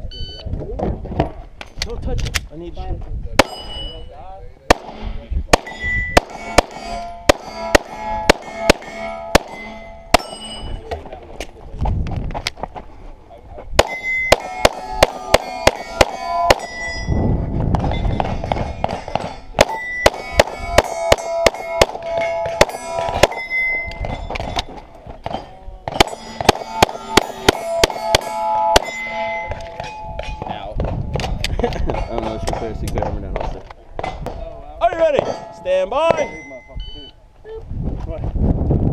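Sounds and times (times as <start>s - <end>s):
steel plates clanging: 5.6s - 11.0s, 13.8s - 17.2s, 17.8s - 30.7s, 34.0s - 36.7s.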